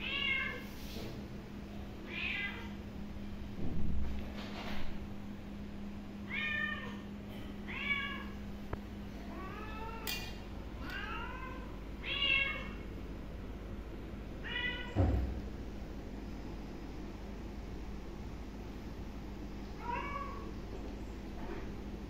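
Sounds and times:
cat meowing: 0:00.0 - 0:00.6, 0:02.1 - 0:02.7, 0:06.3 - 0:07.0, 0:07.7 - 0:08.4, 0:10.8 - 0:12.8, 0:14.4 - 0:15.0.

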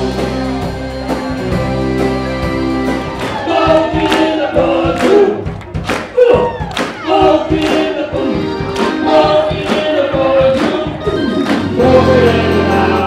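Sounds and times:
drums hitting: 0:00.0 - 0:13.0
person singing: 0:06.2 - 0:13.0.

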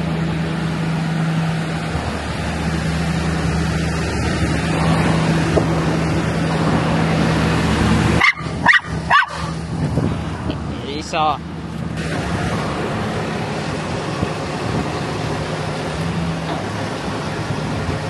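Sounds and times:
engine droning: 0:00.0 - 0:18.0
dog barking: 0:08.2 - 0:09.6.

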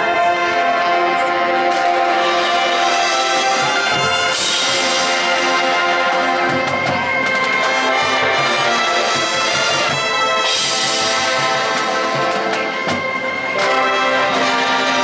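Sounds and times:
brass chords: 0:00.0 - 0:15.0
drum hits: 0:03.6 - 0:13.7.

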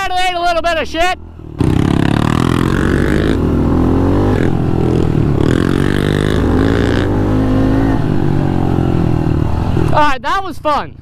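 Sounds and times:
small motorbike engine revving: 0:01.5 - 0:10.0.

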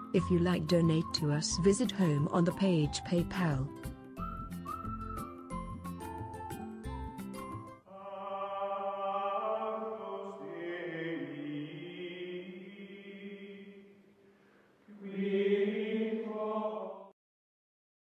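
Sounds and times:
choral chanting: 0:07.9 - 0:14.0, 0:14.9 - 0:17.2.

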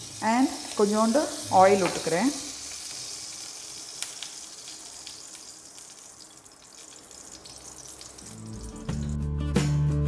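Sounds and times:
fat sizzling and crackling: 0:00.0 - 0:09.4
oil pouring into pan: 0:02.5 - 0:09.2
background music: 0:08.2 - 0:10.0.

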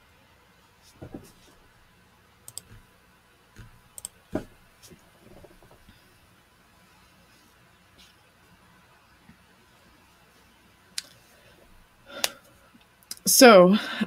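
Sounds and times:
mouse clicking: 0:02.5 - 0:02.9, 0:03.6 - 0:04.2.

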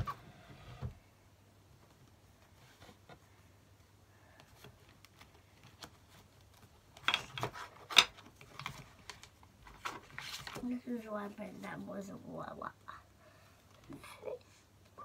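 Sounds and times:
papers rustling in drawer: 0:04.7 - 0:11.7.

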